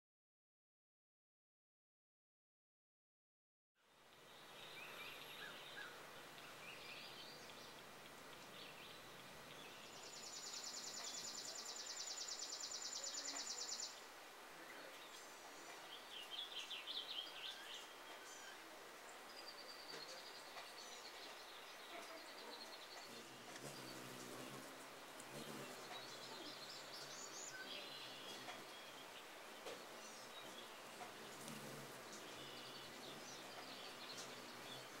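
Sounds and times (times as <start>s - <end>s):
bird chirps: 4.4s - 14.0s
buzzing bird trill: 23.1s - 25.8s.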